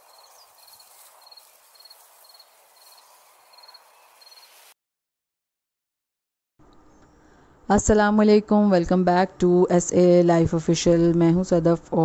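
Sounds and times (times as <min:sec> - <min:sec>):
cricket chirping: 0:00.0 - 0:04.6
outdoor ambience hiss: 0:00.0 - 0:04.8, 0:06.6 - 0:12.0.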